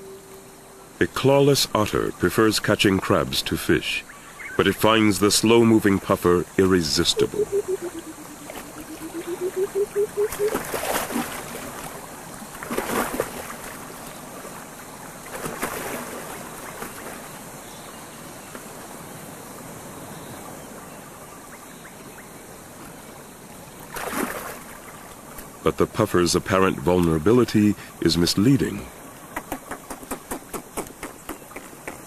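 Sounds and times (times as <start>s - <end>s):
water splashing: 4.6s - 17.4s, 23.8s - 25.6s
wavering rising tone: 7.1s - 10.6s.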